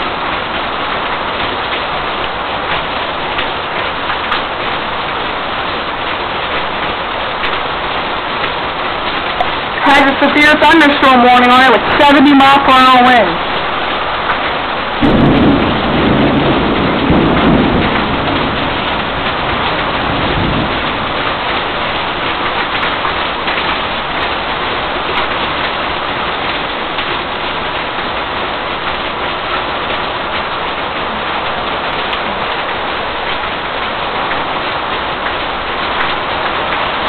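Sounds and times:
heavy rain pouring: 0.0s - 37.0s
thunder rumbling: 14.6s - 37.0s.

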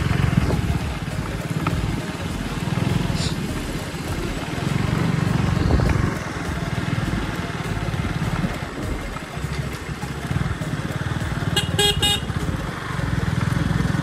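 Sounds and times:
motorcycle engine running: 0.0s - 14.0s
vehicle horn beeps: 11.5s - 12.5s.

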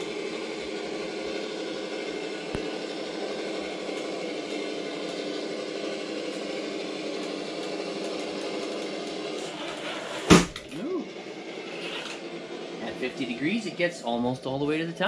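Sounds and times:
whine rising and falling: 0.0s - 15.0s
toy truck crashing to floor: 10.2s - 10.6s
toy truck motor whining: 11.6s - 12.2s.

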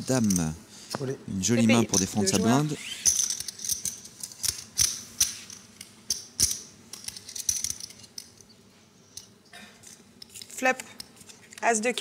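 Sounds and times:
poker chips clicking: 3.0s - 8.5s.

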